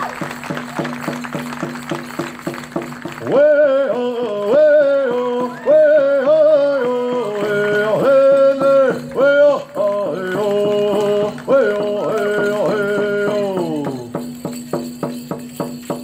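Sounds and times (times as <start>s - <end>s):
fast steady drumbeat: 0.0s - 16.0s
high singing voice: 3.2s - 14.2s.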